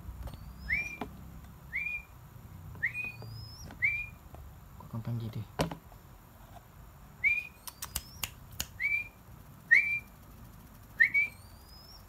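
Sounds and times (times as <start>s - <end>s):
person whistling call notes: 1.7s - 2.1s, 2.8s - 4.2s, 11.0s - 12.0s
sharp clicks: 7.6s - 8.9s.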